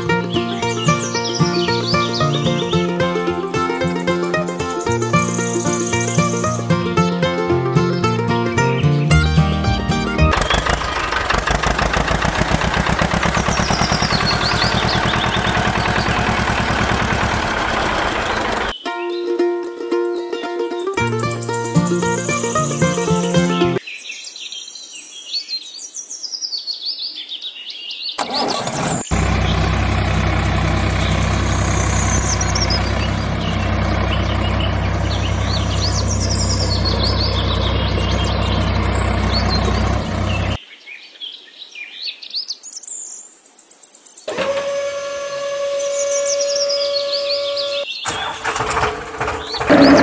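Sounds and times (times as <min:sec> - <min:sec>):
tractor engine humming: 0:00.0 - 0:18.8, 0:20.9 - 0:23.8, 0:28.2 - 0:40.6, 0:44.3 - 0:50.0
birds chirping: 0:00.0 - 0:19.4, 0:20.4 - 0:44.3, 0:45.7 - 0:50.0.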